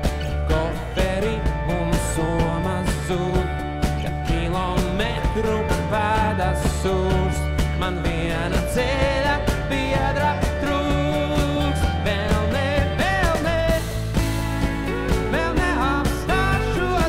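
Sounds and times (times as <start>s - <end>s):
acoustic guitar: 0.0s - 17.0s
bass guitar: 0.0s - 17.0s
drums: 0.0s - 17.0s
electric guitar: 0.0s - 17.0s.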